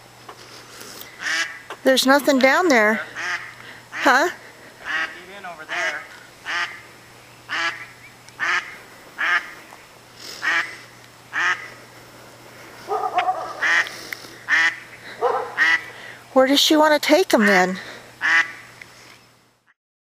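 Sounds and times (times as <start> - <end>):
duck quacking: 1.2 - 1.7, 2.9 - 6.9, 7.5 - 9.6, 10.4 - 11.8, 12.9 - 16.0, 17.3 - 18.7.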